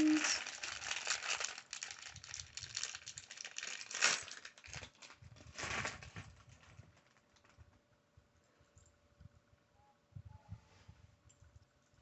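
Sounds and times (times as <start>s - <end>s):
plastic bag crinkling: 0.0s - 7.8s.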